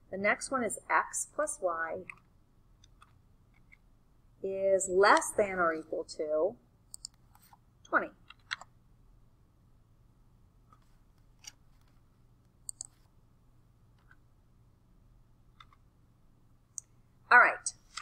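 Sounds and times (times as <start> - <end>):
low steady hum: 0.0 - 18.0
faint clicks and taps: 2.0 - 3.9, 6.9 - 8.7, 10.7 - 13.1, 13.9 - 14.2, 15.5 - 15.9.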